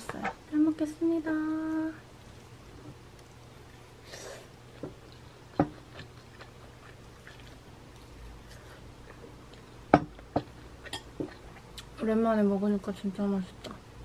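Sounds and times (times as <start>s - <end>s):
soft chewing: 2.2s - 12.0s.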